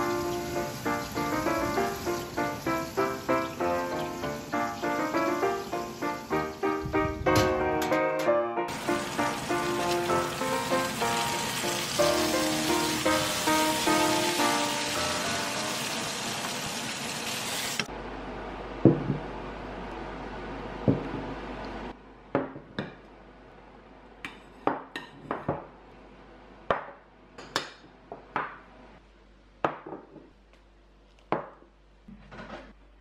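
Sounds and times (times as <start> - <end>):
frying pan sizzling: 0.0 - 8.0, 8.7 - 17.9.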